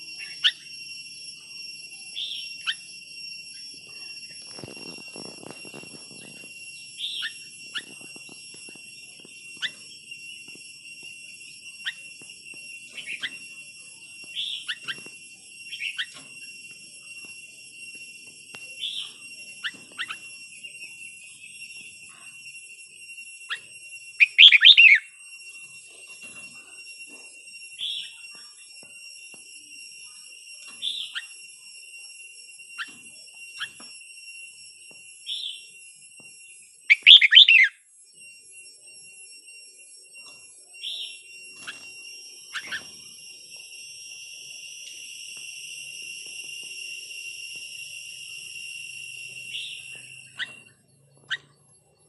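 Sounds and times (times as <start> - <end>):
steady high-pitched whine: 0.0 - 52.0
bird song notes: 0.1 - 8.1, 12.9 - 15.0, 18.8 - 22.0, 23.5 - 25.1, 36.9 - 37.7, 40.8 - 43.1, 49.2 - 52.0
bird chirping: 0.1 - 10.5, 12.9 - 17.3, 18.8 - 22.4, 23.5 - 25.1, 36.9 - 37.7, 40.3 - 43.4, 48.2 - 52.0.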